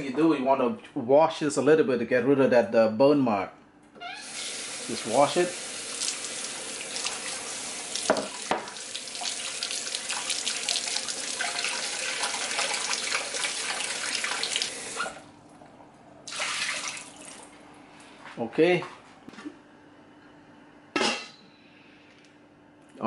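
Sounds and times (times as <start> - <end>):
faucet running water: 4.1 - 15.2, 16.3 - 17.5
hands rubbing and rinsing vegetables: 4.5 - 15.2.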